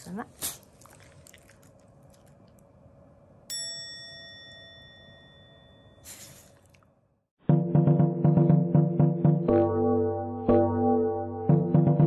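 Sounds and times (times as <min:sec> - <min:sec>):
bell-like ding: 0:03.5 - 0:06.1.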